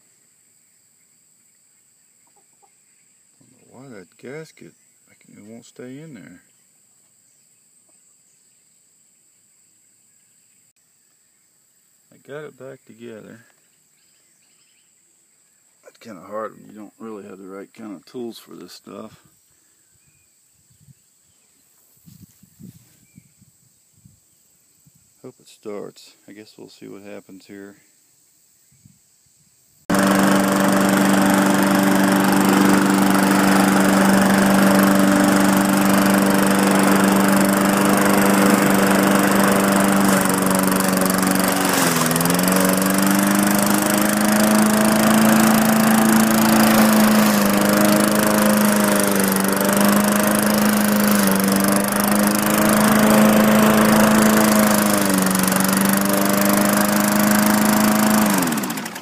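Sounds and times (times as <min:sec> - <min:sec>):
lawn mower engine running: 0:29.9 - 0:59.0.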